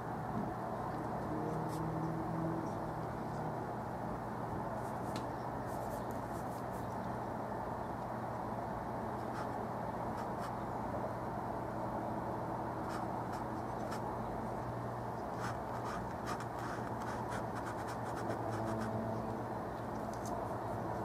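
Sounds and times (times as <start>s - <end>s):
steady low hum: 0.0s - 21.0s
paintbrush scratching on canvas: 4.8s - 6.9s, 9.2s - 10.6s, 12.8s - 14.0s, 15.3s - 19.0s.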